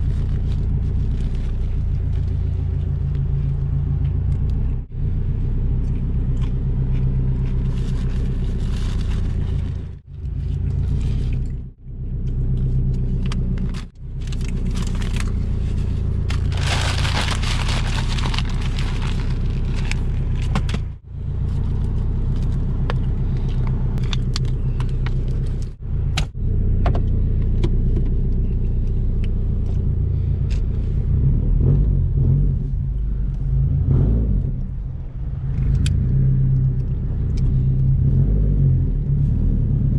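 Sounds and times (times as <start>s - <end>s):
car engine idling with deep rumble: 0.0s - 39.9s
paper wrapper crumpling: 7.6s - 9.9s, 13.6s - 20.5s.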